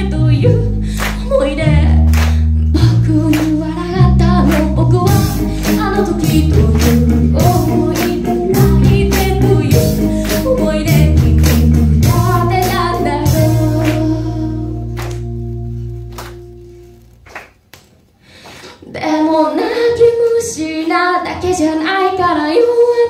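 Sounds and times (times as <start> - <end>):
woman singing lead vocals: 0.0 - 15.3, 18.8 - 23.0
electric guitar: 0.0 - 17.2
electric bass: 0.0 - 17.3
drum kit steady beat: 4.4 - 17.2.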